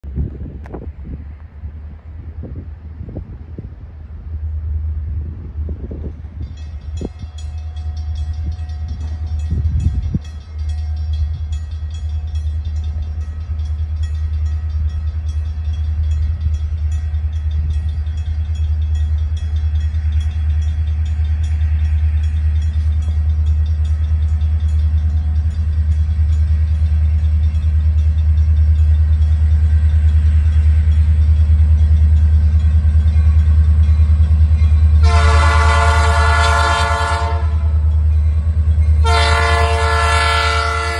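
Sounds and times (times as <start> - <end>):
locomotive engine rumble: 0.0 - 40.9
train air horn: 35.0 - 37.8, 39.0 - 40.9.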